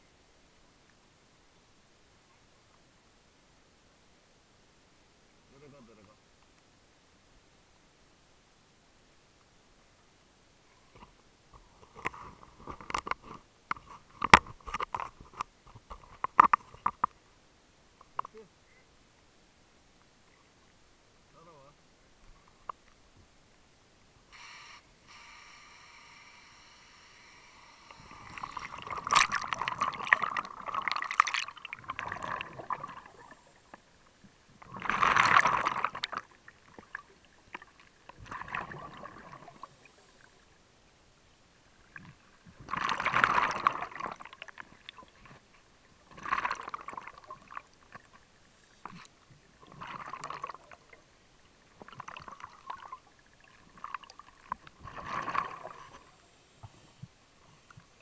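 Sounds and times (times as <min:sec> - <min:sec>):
underwater bubbles gurgling: 0:27.6 - 0:33.6, 0:34.6 - 0:40.3, 0:41.8 - 0:45.4, 0:46.0 - 0:48.1, 0:49.6 - 0:51.0, 0:51.8 - 0:56.2.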